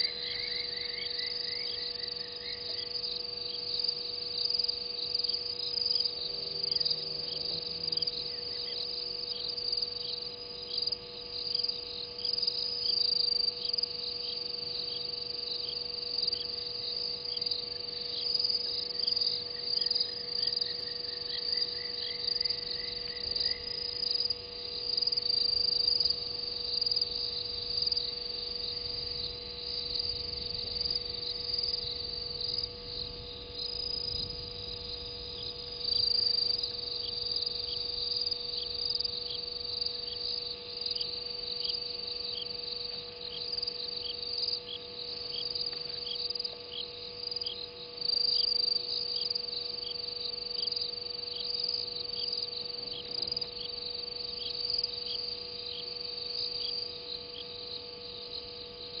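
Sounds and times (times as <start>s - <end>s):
insect short chirps: 0.0s - 14.3s
insect high trill: 0.0s - 59.0s.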